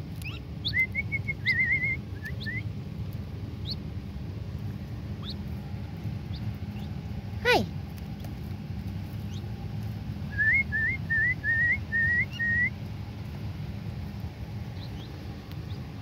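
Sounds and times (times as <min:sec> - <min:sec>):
young birds calling: 0:00.2 - 0:02.7, 0:03.5 - 0:04.0, 0:04.7 - 0:07.6, 0:09.0 - 0:09.6, 0:10.3 - 0:12.8, 0:14.0 - 0:16.0.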